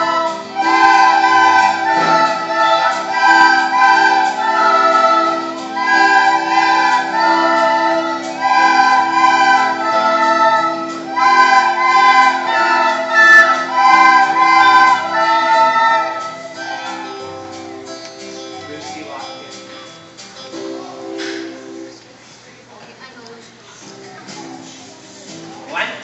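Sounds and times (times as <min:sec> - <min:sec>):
children playing recorders: 0:00.0 - 0:17.8.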